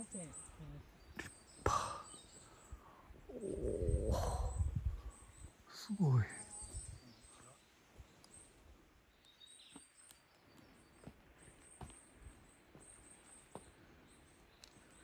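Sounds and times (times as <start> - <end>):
faint high bird chirps: 0.0 - 15.0
footsteps on stone path: 9.4 - 15.0.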